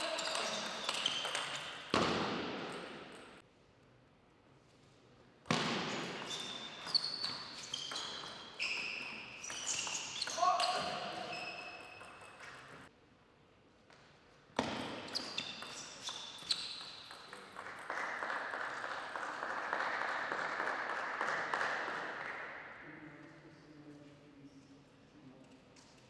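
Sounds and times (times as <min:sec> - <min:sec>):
table tennis ball on paddle and table: 0:00.0 - 0:03.4, 0:14.6 - 0:17.9.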